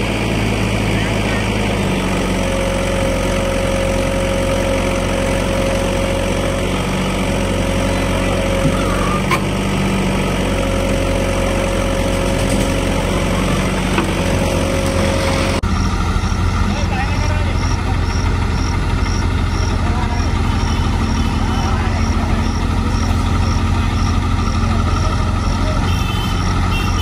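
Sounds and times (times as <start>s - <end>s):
heavy diesel engines running: 0.0s - 27.0s.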